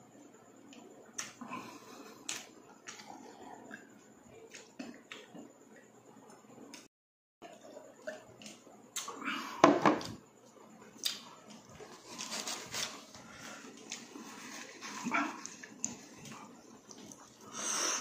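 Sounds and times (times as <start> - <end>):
mug set down on table: 9.6 - 10.2
paper tissue rustling: 11.9 - 13.1.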